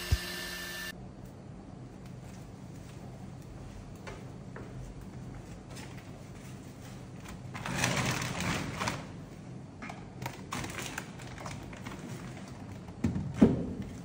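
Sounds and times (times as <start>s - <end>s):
plastic scraping and rustling: 7.0s - 9.2s, 10.2s - 13.0s.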